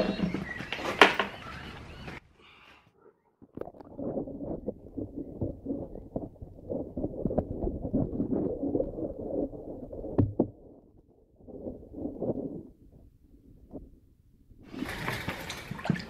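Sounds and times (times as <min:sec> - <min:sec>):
hands rubbing on microphone: 0:03.9 - 0:10.2.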